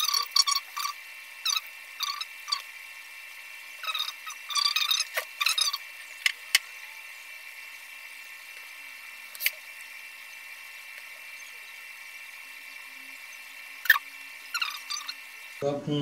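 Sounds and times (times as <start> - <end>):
short high squeaks: 0.0 - 2.6, 3.8 - 5.8
high-pitched electronic whine: 0.0 - 16.0.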